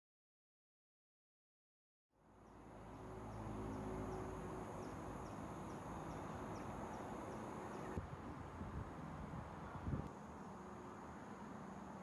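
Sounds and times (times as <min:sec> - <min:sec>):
high insect drone: 0:02.4 - 0:08.5, 0:09.6 - 0:12.0.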